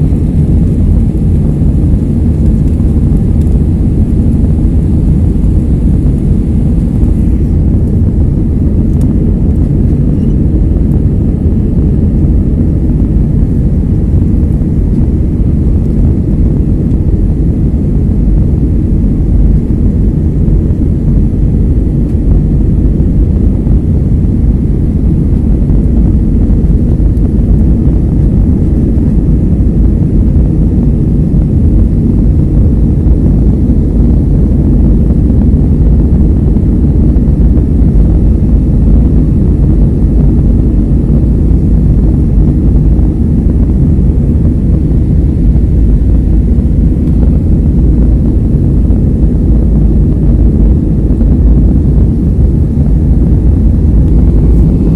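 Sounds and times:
jet engines rumbling: 0:00.0 - 0:54.9
rushing air: 0:00.0 - 0:54.9.

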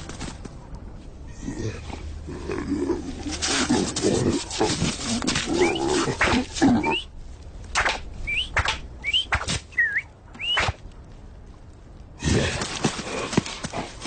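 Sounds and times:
short rising whistles: 0:08.2 - 0:10.8.

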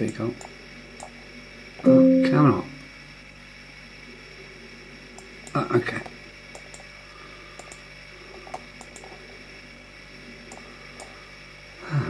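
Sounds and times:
low steady hum: 0:00.0 - 0:12.0
computer mouse clicks: 0:06.5 - 0:06.9, 0:07.6 - 0:07.8, 0:08.4 - 0:09.2, 0:10.5 - 0:11.1.

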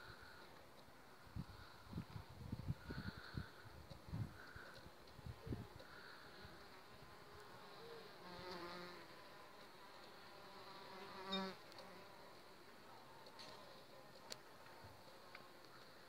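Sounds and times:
bee buzzing past: 0:05.3 - 0:12.6.

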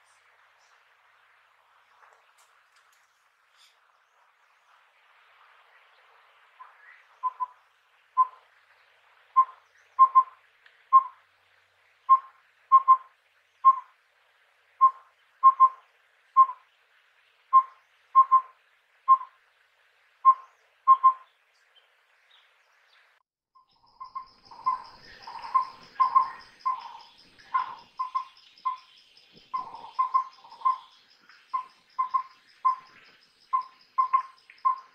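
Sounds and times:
owlet whistled calls: 0:06.6 - 0:07.6, 0:09.4 - 0:11.2, 0:12.1 - 0:13.9, 0:14.8 - 0:15.8, 0:16.4 - 0:16.6, 0:17.5 - 0:18.5, 0:20.2 - 0:21.2, 0:23.9 - 0:28.9, 0:29.5 - 0:34.9.

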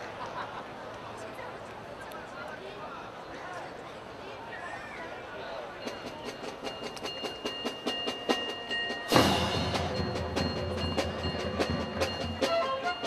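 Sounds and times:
cymbal crash: 0:09.1 - 0:12.4.

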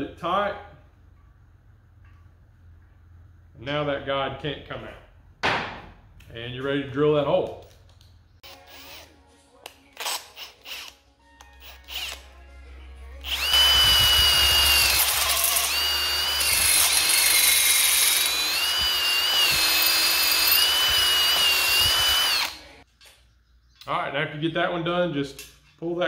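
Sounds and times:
power drill whining: 0:08.4 - 0:09.1, 0:10.0 - 0:10.9, 0:11.6 - 0:12.2, 0:13.2 - 0:22.8.

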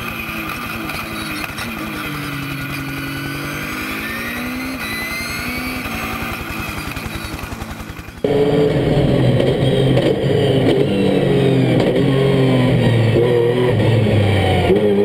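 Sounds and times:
race car engine revving: 0:00.0 - 0:15.0
fast low flutter: 0:06.0 - 0:14.8.

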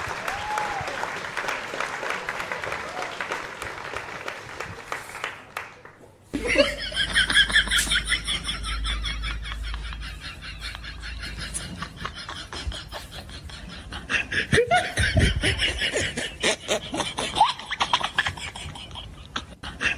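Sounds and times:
hearty laughter: 0:06.3 - 0:19.9.

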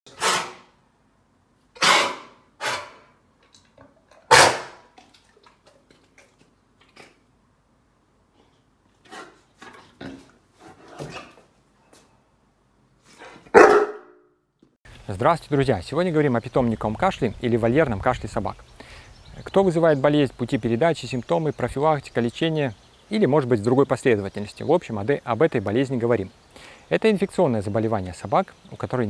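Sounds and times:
large dog barking: 0:04.3 - 0:04.8, 0:13.5 - 0:14.2.

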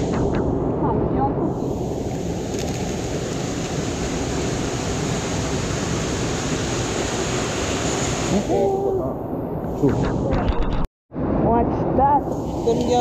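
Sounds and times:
running water rushing: 0:01.7 - 0:08.5.

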